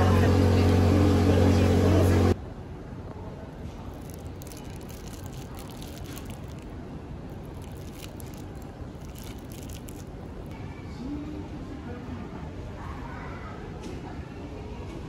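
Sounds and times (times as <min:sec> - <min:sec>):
low background noise: 0:00.0 - 0:15.0
crackling rustles: 0:03.6 - 0:10.5.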